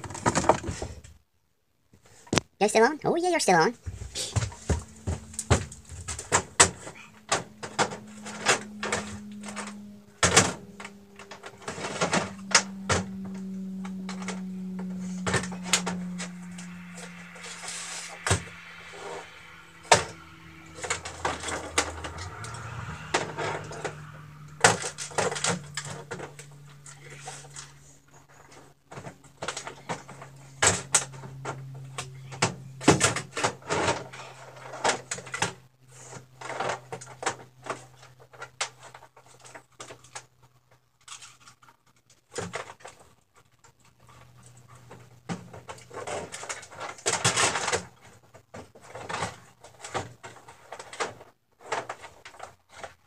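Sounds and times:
steady low hum: 0:03.8 - 0:34.8
tools and cases clattering: 0:04.0 - 0:17.5.

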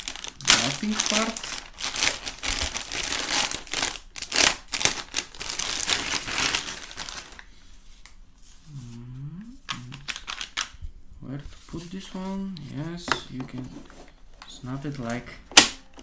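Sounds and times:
plastic bag crinkling: 0:00.0 - 0:07.5, 0:09.7 - 0:10.8.

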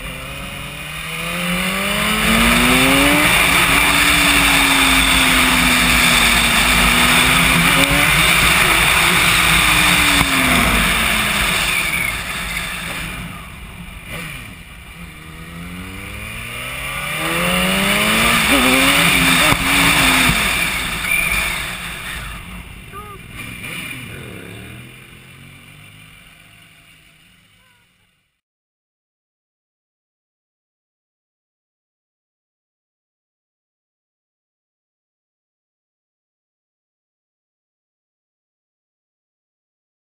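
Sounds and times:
motorcycle engine accelerating: 0:00.0 - 0:28.0.

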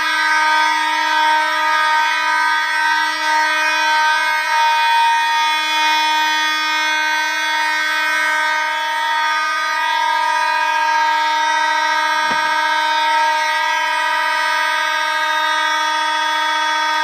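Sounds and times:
buzzy fire alarm horn: 0:00.0 - 0:17.0
brief knock: 0:12.2 - 0:12.6.

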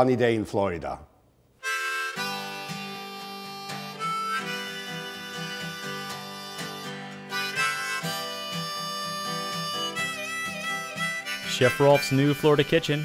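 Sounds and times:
harmonica: 0:01.6 - 0:13.0
strummed acoustic guitar: 0:02.0 - 0:13.0.

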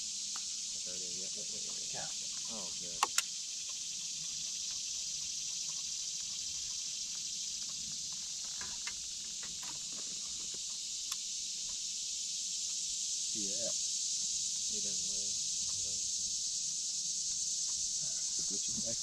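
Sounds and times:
insects droning: 0:00.0 - 0:19.0
faint clicks: 0:01.6 - 0:12.0.

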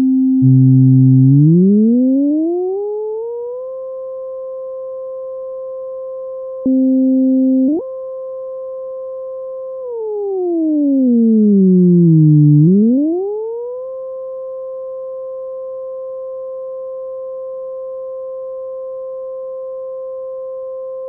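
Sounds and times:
synthesized siren: 0:00.4 - 0:03.8, 0:09.8 - 0:13.9.

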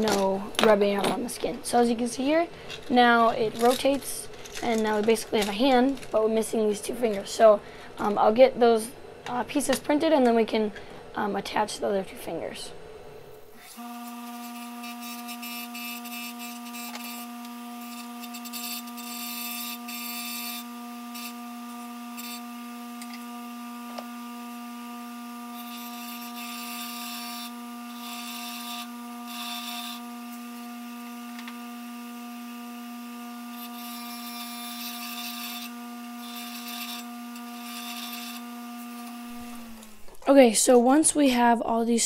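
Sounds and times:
bench grinder motor humming: 0:13.4 - 0:40.1.

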